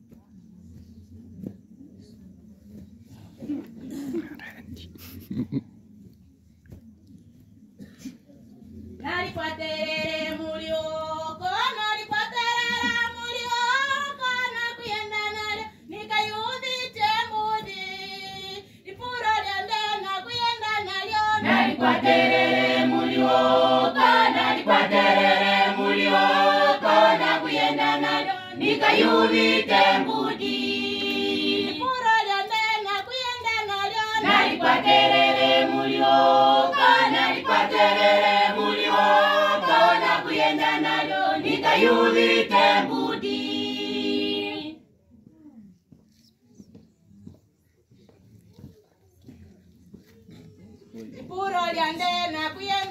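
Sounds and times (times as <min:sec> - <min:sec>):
choir singing in harmony: 0:20.8 - 0:32.8, 0:34.0 - 0:44.8.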